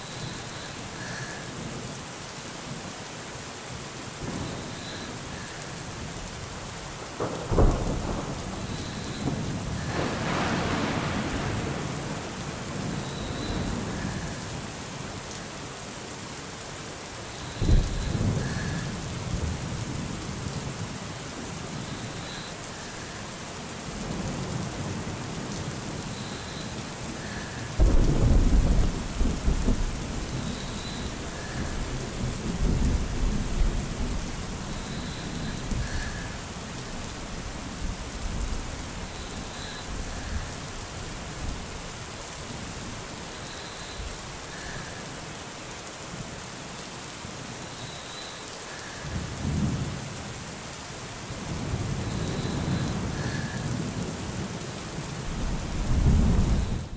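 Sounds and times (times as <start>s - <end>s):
steady rain: 0.0s - 56.9s
thunder claps and rumble: 7.1s - 14.7s, 17.6s - 21.0s, 27.2s - 40.7s, 55.2s - 56.9s.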